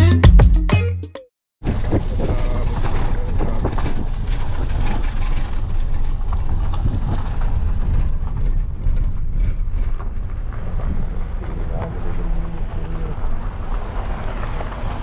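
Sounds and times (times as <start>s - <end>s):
car interior road and wind noise: 1.6s - 15.0s.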